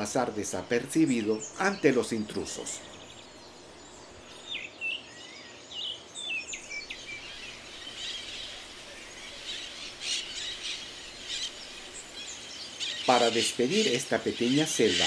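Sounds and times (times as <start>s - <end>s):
parakeet flock chattering: 7.3s - 15.0s.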